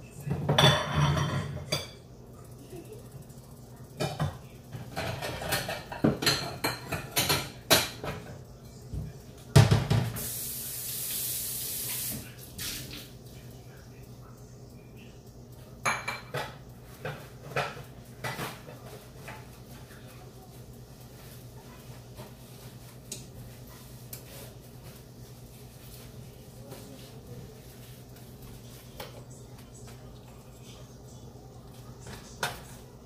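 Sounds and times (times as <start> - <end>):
dishes and cutlery clinking: 0.2 - 2.1, 4.0 - 10.3, 15.6 - 20.1, 31.7 - 32.9.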